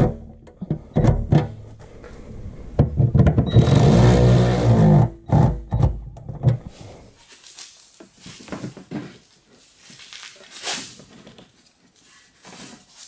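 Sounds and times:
metal and rubber scraping: 0.0s - 7.2s.

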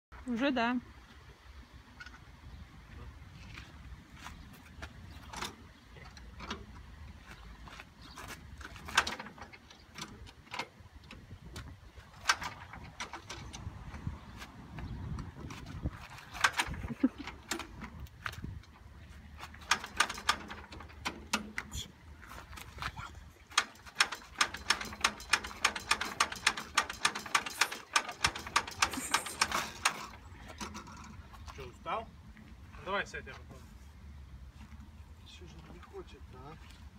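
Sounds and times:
tractor starting handle clicks and clanks: 5.2s - 6.9s, 8.7s - 14.2s, 15.4s - 21.7s, 23.4s - 31.2s.

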